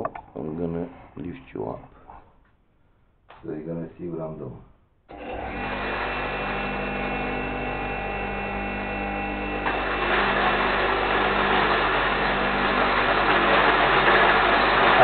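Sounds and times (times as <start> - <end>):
electric grain mill motor hum: 5.1 - 15.0
grain grinding rush: 9.7 - 15.0.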